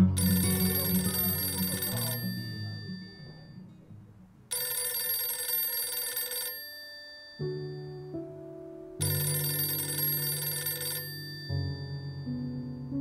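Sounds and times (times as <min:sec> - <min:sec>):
soft background music: 0:00.0 - 0:13.0
telephone ringing: 0:00.2 - 0:03.6, 0:04.5 - 0:08.0, 0:09.0 - 0:12.6.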